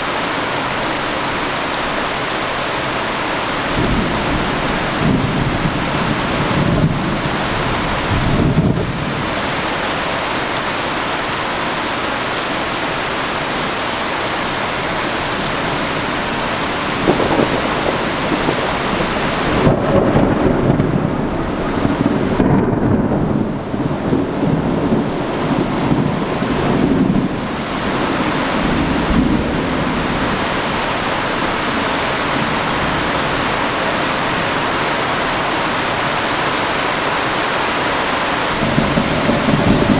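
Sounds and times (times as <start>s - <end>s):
heavy rain: 0.0s - 39.9s
rolling thunder: 3.6s - 9.6s, 15.7s - 34.6s, 38.5s - 39.9s.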